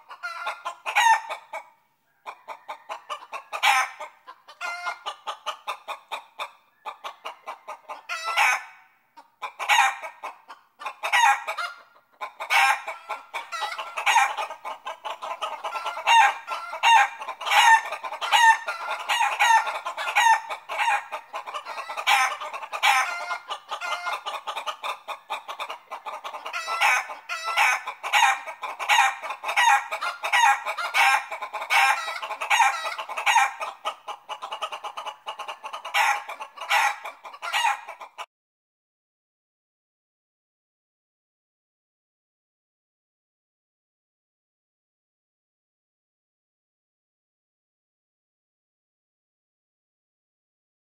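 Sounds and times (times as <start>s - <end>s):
chickens clucking: 0.0s - 38.3s.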